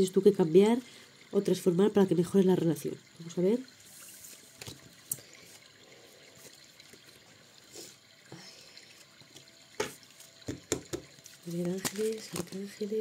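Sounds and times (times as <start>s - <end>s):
cards being shuffled by hand: 4.3s - 5.6s, 10.1s - 12.8s.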